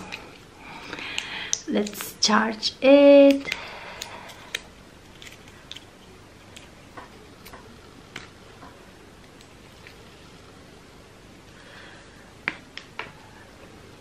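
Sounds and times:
small clicks of packaging: 3.3 - 5.9
faint packaging rustles: 4.1 - 7.5.

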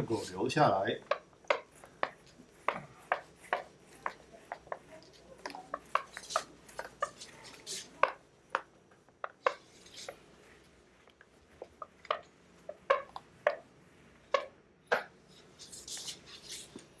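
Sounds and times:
eraser wiping whiteboard: 1.1 - 8.2, 15.4 - 16.9.

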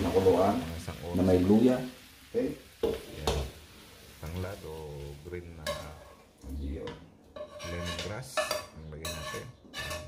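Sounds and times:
metal spoon scraping a frying pan: 5.6 - 6.3, 6.9 - 10.0.

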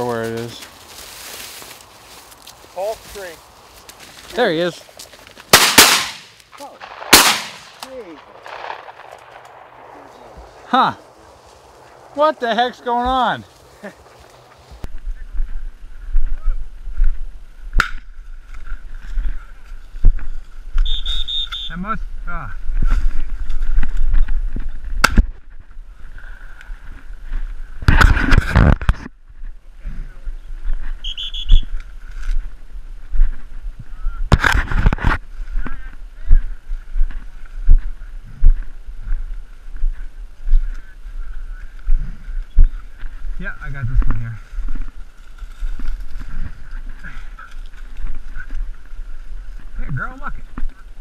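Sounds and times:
crunching through dry corn stubble: 0.0 - 15.6, 29.4 - 51.0.

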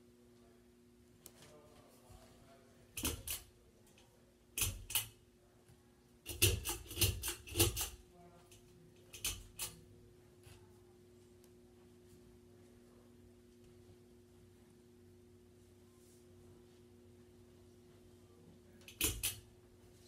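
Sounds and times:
pull-chain switch clicking: 18.9 - 19.4.

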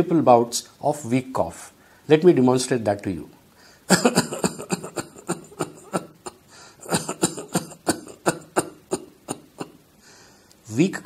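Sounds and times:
man coughing weakly: 3.9 - 9.8.

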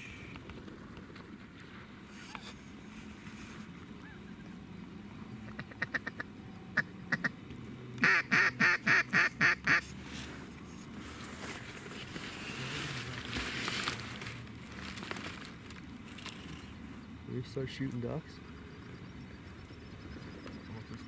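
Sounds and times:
mallard quacking: 5.5 - 7.3, 8.0 - 9.8.

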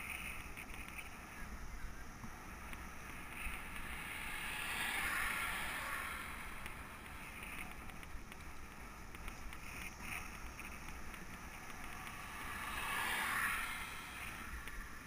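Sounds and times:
car passing on asphalt: 0.0 - 15.0.

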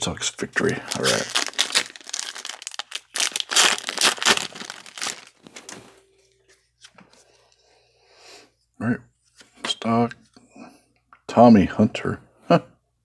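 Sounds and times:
wrapper crinkling and tearing: 0.6 - 5.7.

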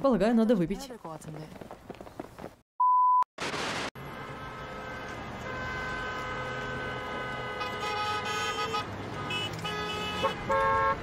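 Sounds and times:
car horns blaring: 4.0 - 11.0.

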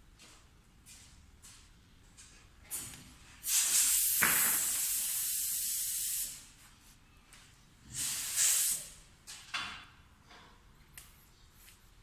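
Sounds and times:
compressed air hissing: 3.4 - 6.5, 7.8 - 9.1.

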